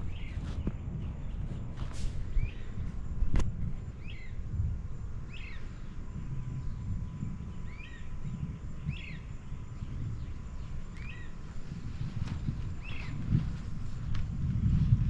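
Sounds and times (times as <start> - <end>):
steady low rumble: 0.0 - 15.0
bird calling: 5.2 - 13.9.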